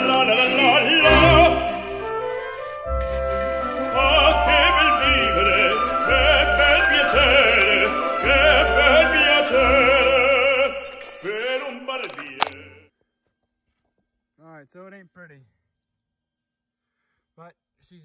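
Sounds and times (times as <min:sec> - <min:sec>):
operatic voice singing: 0:00.0 - 0:01.8, 0:03.9 - 0:12.9
orchestral accompaniment: 0:00.0 - 0:11.8.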